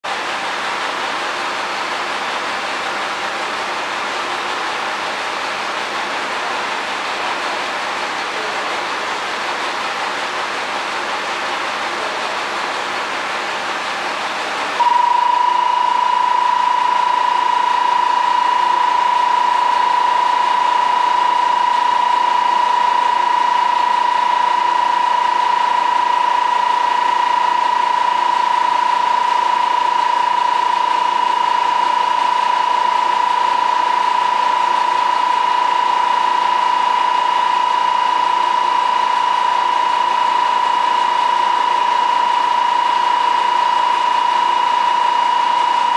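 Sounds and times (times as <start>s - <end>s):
electronic buzzer tone: 14.8s - 45.9s.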